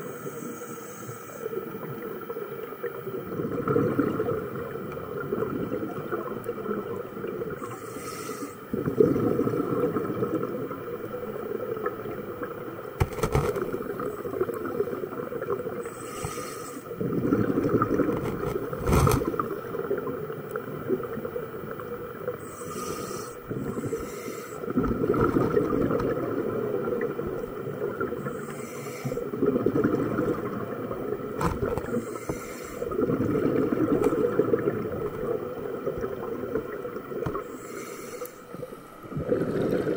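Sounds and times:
regulator inhale hiss: 0:00.0 - 0:01.7, 0:07.6 - 0:08.8, 0:15.8 - 0:17.0, 0:22.3 - 0:24.7, 0:28.2 - 0:29.4, 0:31.9 - 0:33.0, 0:37.3 - 0:38.6
gurgle of exhaled bubbles: 0:01.8 - 0:07.8, 0:08.7 - 0:22.6, 0:24.6 - 0:28.5, 0:29.2 - 0:37.7, 0:38.5 - 0:39.9.

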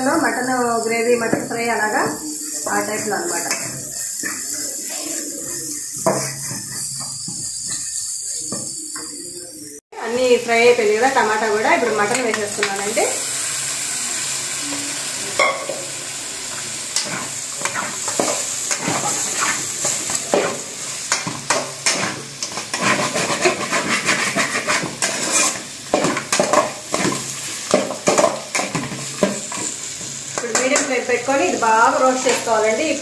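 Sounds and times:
meat frying hiss: 0:00.0 - 0:33.0
metal spatula scraping pan: 0:02.0 - 0:08.4, 0:17.0 - 0:29.8.

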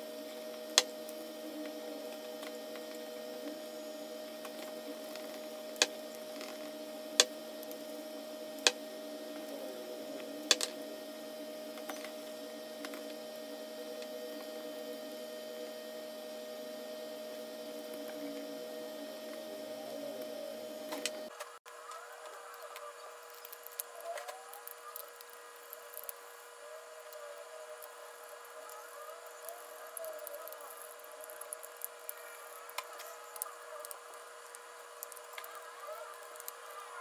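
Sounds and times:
electrical hum: 0:00.0 - 0:37.0.

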